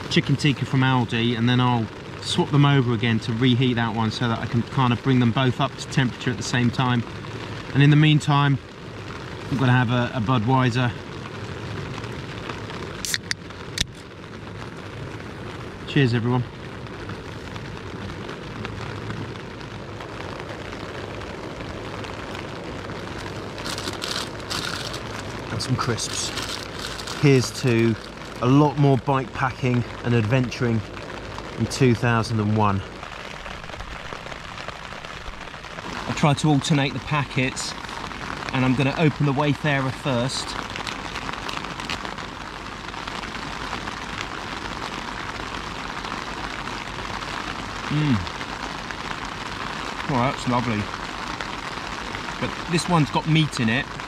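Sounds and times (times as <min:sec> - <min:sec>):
rain pattering on tent: 0:00.0 - 0:54.0
crisp packet crackling: 0:22.2 - 0:29.5, 0:40.2 - 0:42.4.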